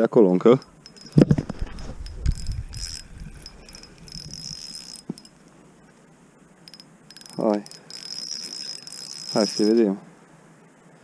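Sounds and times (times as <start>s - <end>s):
spinning reel whirring: 0.6s - 5.4s, 6.6s - 9.9s.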